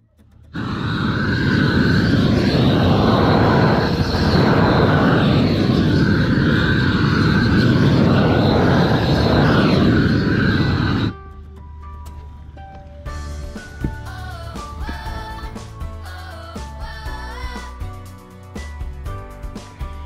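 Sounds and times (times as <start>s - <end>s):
gas torch flame rushing: 0.6s - 11.2s.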